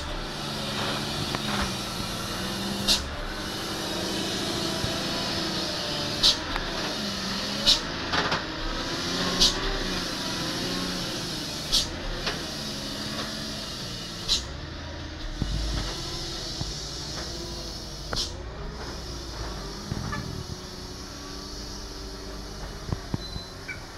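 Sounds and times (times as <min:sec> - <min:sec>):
truck diesel engine passing slowly: 0:00.0 - 0:23.9
short sharp hisses: 0:11.5 - 0:12.0, 0:13.4 - 0:14.6, 0:15.4 - 0:22.6.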